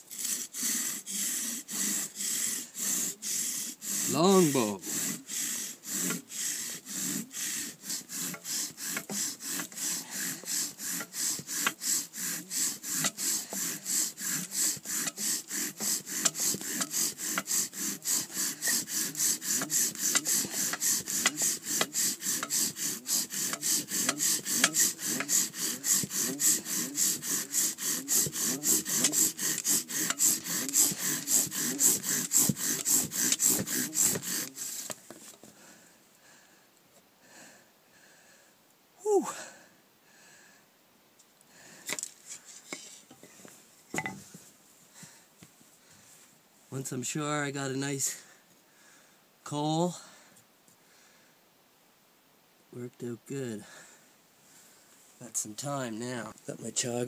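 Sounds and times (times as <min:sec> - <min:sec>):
bow drill spindle squeaking and grinding: 0:00.0 - 0:35.5.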